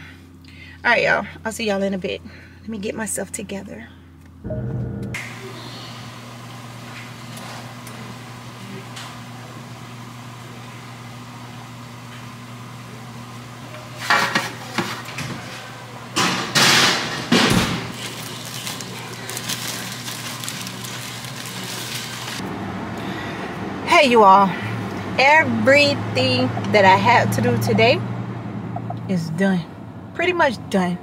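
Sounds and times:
low hum: 3.8s - 6.6s, 18.0s - 30.8s.

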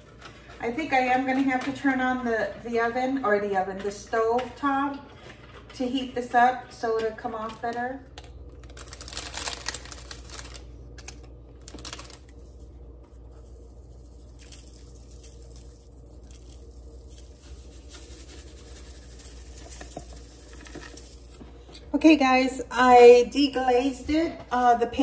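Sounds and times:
steady low hum: 0.0s - 25.0s
herbs shaken from jars: 11.7s - 21.4s.

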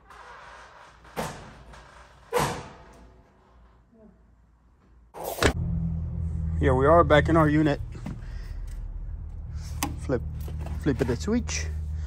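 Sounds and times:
steady low hum: 5.5s - 12.0s.

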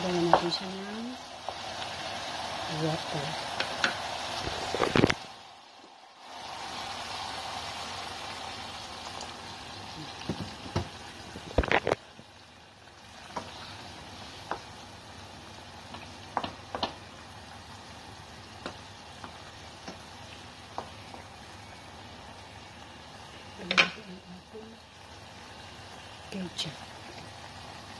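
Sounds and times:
meat sizzling in a saucepan: 0.0s - 27.9s
wooden spatula knocking on pan: 10.2s - 11.0s, 16.3s - 17.0s.

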